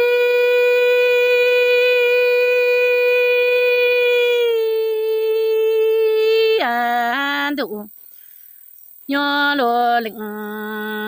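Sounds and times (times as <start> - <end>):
woman singing a long note: 0.0 - 7.9.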